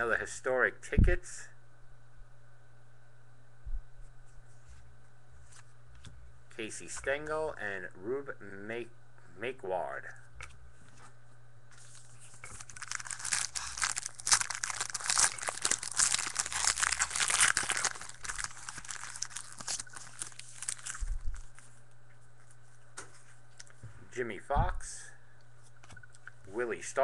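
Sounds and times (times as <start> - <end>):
low electrical hum: 0.0 - 27.0
foil wrapper crinkling and tearing: 11.8 - 21.7.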